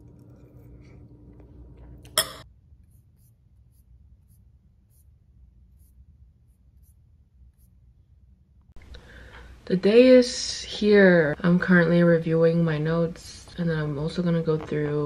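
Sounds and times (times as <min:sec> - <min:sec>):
quiet eating: 0:00.0 - 0:03.5
steady low hum: 0:00.0 - 0:15.0
metal spoon clinking on dish: 0:02.1 - 0:02.5.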